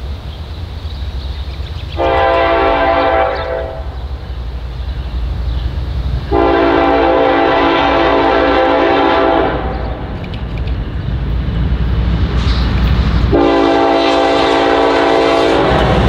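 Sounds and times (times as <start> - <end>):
low rumble of train: 0.0 - 16.0
locomotive air horn blasts: 2.0 - 4.0, 6.3 - 9.8, 13.3 - 16.0.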